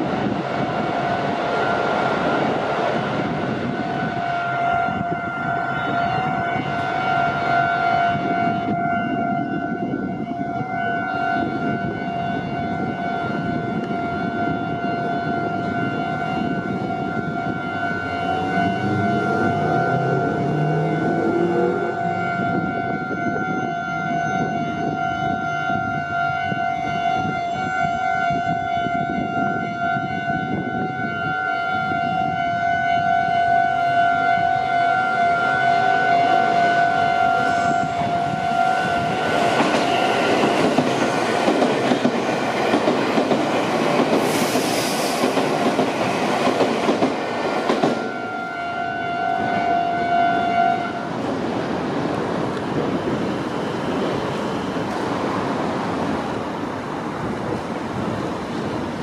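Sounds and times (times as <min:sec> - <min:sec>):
train wheels rushing on rails: 0:00.0 - 0:08.8, 0:11.4 - 0:25.0, 0:34.6 - 0:59.0
level-crossing warning bell: 0:00.7 - 0:44.2, 0:52.0 - 0:55.2.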